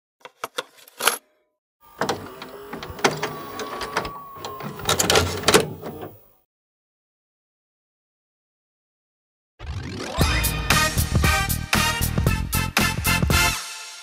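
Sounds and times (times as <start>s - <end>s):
tape motor whirring: 1.8s - 6.4s
cassette clicking into player: 1.9s - 6.3s.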